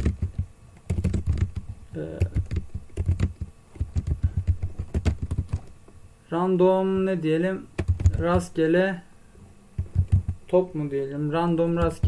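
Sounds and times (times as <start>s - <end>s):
keyboard typing: 0.0s - 5.7s, 7.8s - 8.6s, 9.8s - 10.5s, 11.6s - 12.0s.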